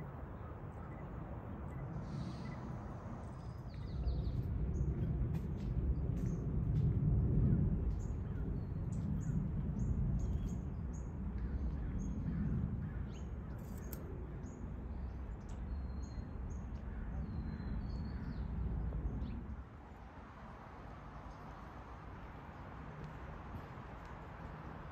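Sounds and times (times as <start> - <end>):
low rumble: 1.8 - 13.4.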